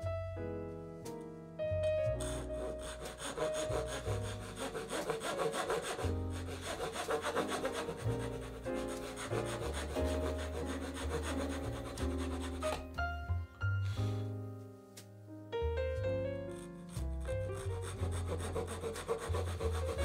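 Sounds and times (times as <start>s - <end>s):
soft piano music: 0.0s - 20.0s
hand saw cutting wood: 2.2s - 12.8s, 16.5s - 20.0s.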